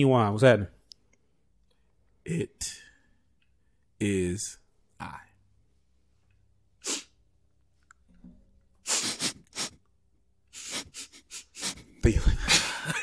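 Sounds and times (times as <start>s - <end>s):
person sniffing and breathing hard: 6.8s - 7.2s, 8.8s - 9.8s, 10.5s - 12.0s.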